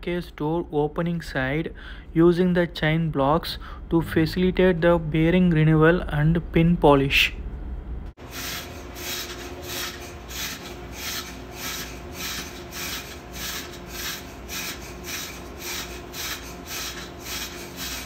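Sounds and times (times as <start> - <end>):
cloth rag rubbing on metal: 8.2 - 18.0.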